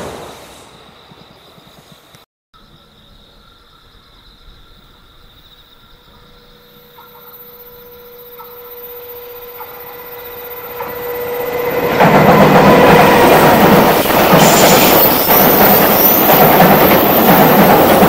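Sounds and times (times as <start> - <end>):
electric locomotive approaching: 0.0 - 18.0
wheel and track noise: 6.9 - 18.0.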